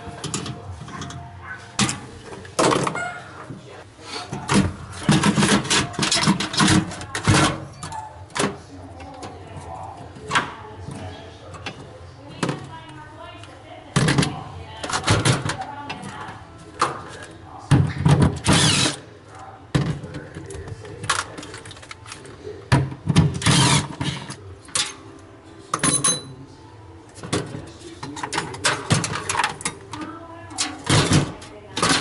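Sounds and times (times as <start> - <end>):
knocks and clatter of tools: 0.0 - 3.6, 4.3 - 12.8, 19.7 - 25.0, 25.7 - 26.4, 27.1 - 32.0.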